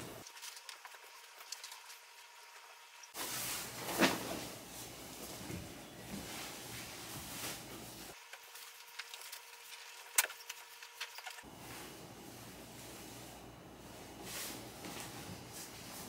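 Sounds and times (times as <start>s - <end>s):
bedding fabric rustling: 3.2s - 8.2s, 11.4s - 16.0s.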